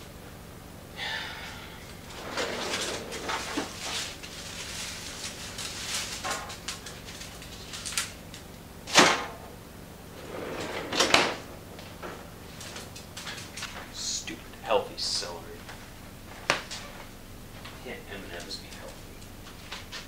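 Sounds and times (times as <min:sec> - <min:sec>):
freezer drawer sliding: 0:02.0 - 0:06.5, 0:10.1 - 0:13.4
plastic bag rustling: 0:02.0 - 0:08.5, 0:10.1 - 0:14.0.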